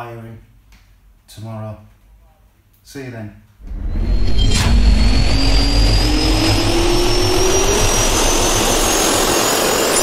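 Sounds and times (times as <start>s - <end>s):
jet turbine engine spooling up: 3.6s - 10.0s.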